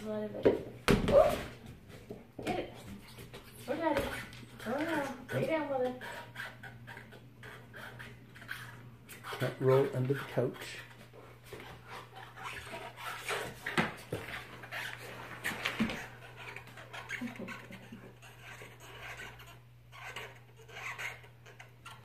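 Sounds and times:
ball knocking on wooden floor: 0.4s - 2.6s
dog teeth rubbing on rubber ball: 3.0s - 22.0s.

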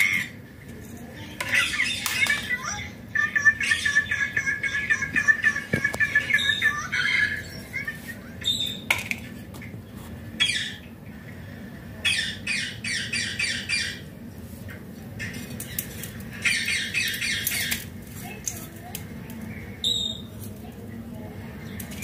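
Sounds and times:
parrot squawking: 1.5s - 8.9s, 10.4s - 10.8s, 12.0s - 14.1s, 16.4s - 17.8s.

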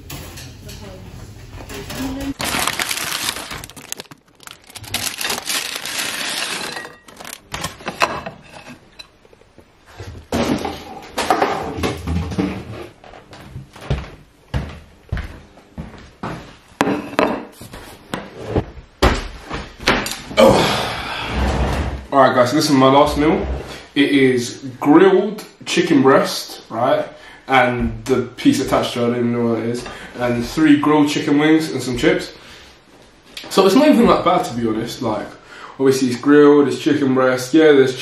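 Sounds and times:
paper packaging rustling: 2.3s - 7.8s.

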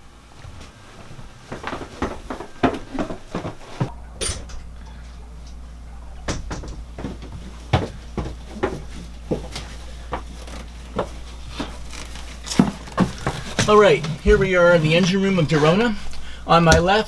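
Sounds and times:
steady low hum: 0.0s - 17.0s
footsteps on hard deck: 0.4s - 3.9s, 6.4s - 14.7s.

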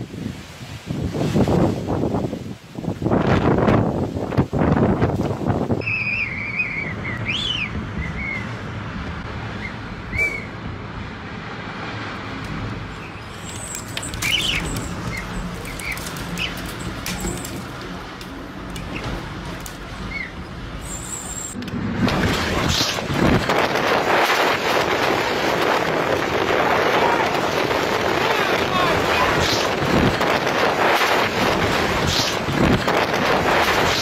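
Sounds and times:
storm wind blowing: 0.0s - 34.0s
high chirps and whistles: 5.8s - 8.5s.

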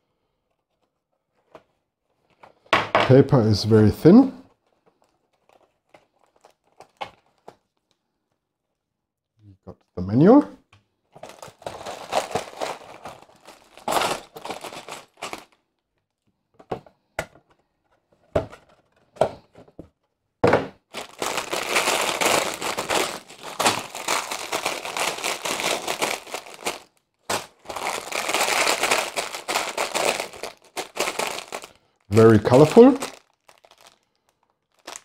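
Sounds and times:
plastic bags crinkling: 4.5s - 8.0s, 11.1s - 16.1s, 20.8s - 35.0s.

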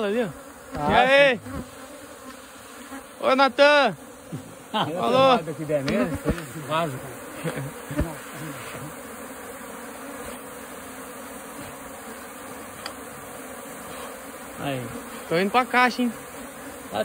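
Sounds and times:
bee swarm buzzing: 0.0s - 17.0s.

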